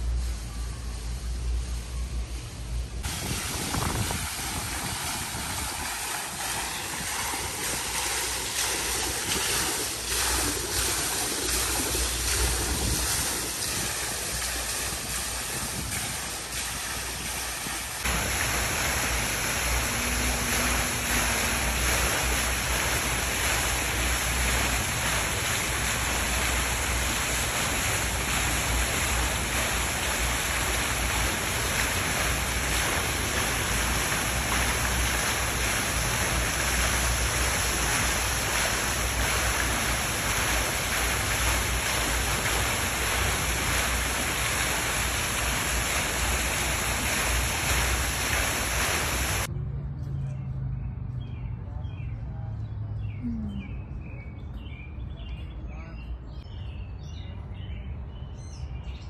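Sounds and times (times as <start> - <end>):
water splashing into fountain basin: 3.0 - 49.5.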